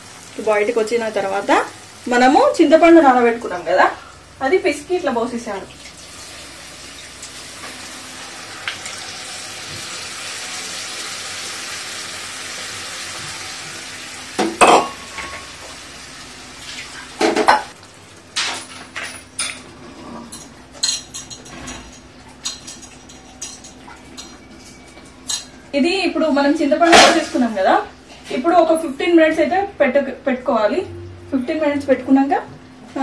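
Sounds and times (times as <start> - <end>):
curry sizzling in oil: 0.0 - 18.3.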